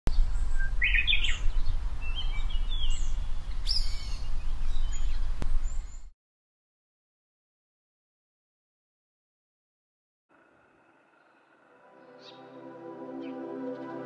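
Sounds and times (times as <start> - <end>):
birds chirping and whistling: 0.1 - 6.1, 11.1 - 12.6.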